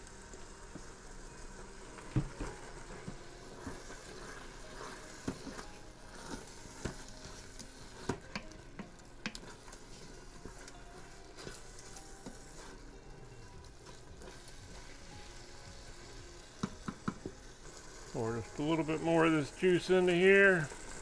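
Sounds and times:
food sizzling in pot: 0.0 - 21.0
wooden spoon knocking on pot: 16.6 - 17.3.

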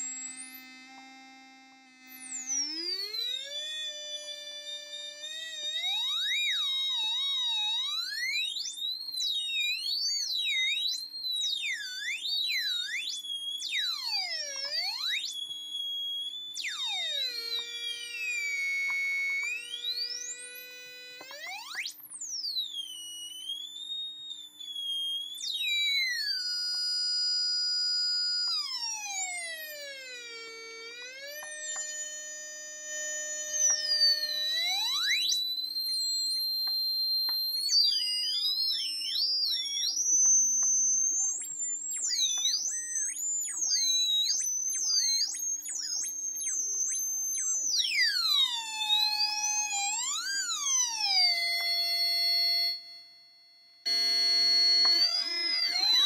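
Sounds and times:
gliding electronic oscillator tones: 53.9 - 56.0.

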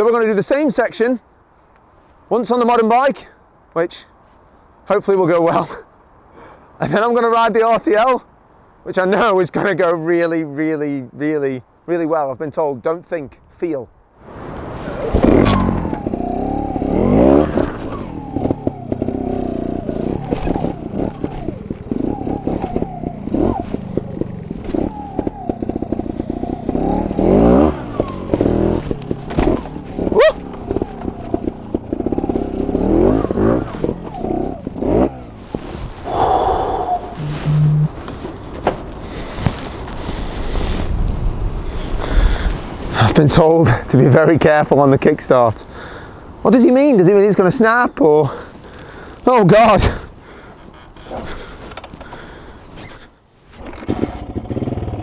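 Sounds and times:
motorcycle engine revving: 14.7 - 40.8, 53.6 - 55.0
motorcycle knocking on rocks: 28.0 - 29.8.

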